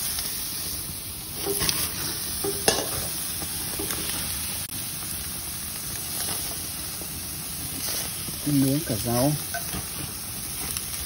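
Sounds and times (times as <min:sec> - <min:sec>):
meat sizzling on grill: 0:00.0 - 0:11.0.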